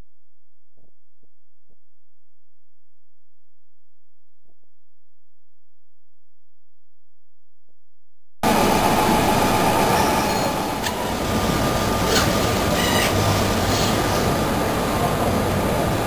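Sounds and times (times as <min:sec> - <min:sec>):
conveyor line running: 0:08.4 - 0:16.0.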